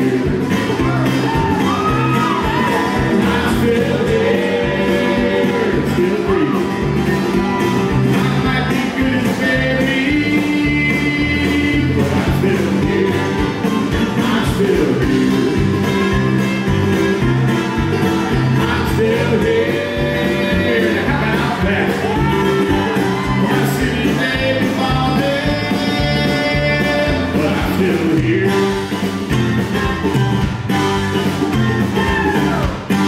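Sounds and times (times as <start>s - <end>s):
bass: 0.0s - 33.0s
drums: 0.0s - 33.0s
mandolin: 0.0s - 33.0s
man singing: 2.0s - 6.8s, 8.0s - 15.7s, 18.5s - 28.8s.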